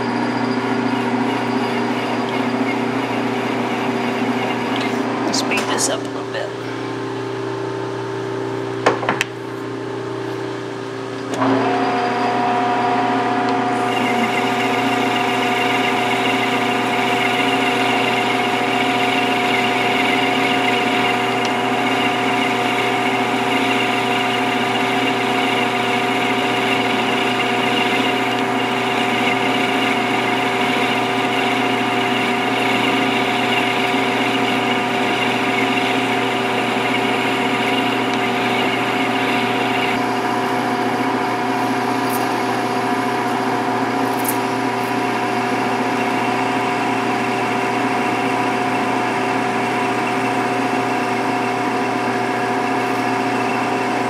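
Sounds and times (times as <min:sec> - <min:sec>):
lathe spindle humming and whining: 0:00.0 - 0:54.0
cutting tool hissing on workpiece: 0:13.7 - 0:40.7.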